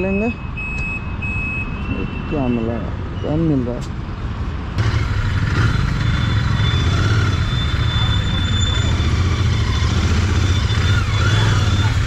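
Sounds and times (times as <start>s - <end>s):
motorcycle engine running: 4.8s - 12.0s.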